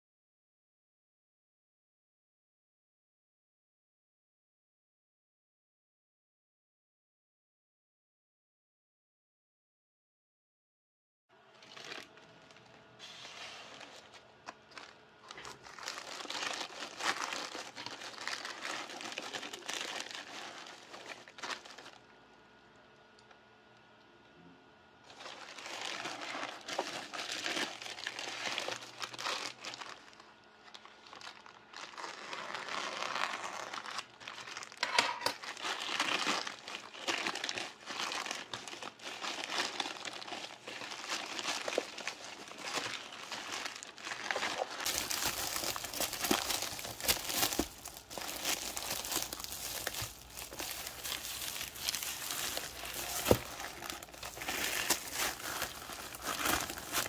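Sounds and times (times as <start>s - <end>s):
plastic mailer crinkling: 11.4s - 22.0s, 25.1s - 57.0s.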